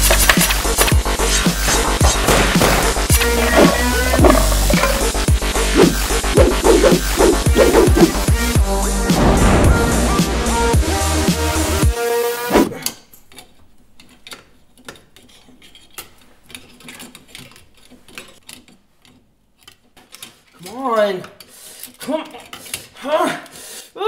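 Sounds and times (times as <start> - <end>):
music: 0.0 - 12.8.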